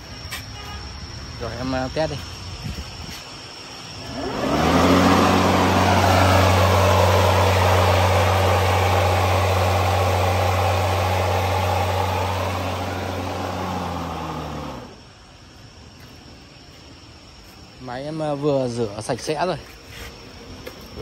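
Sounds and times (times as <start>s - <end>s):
lawn mower motor running: 4.0s - 15.0s.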